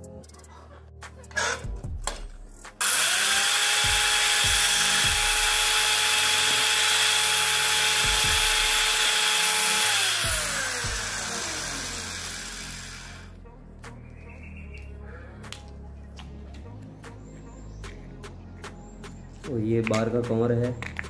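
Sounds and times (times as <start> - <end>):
disc cutting into metal: 2.8 - 13.2
electric disc cutter whine: 2.8 - 13.3.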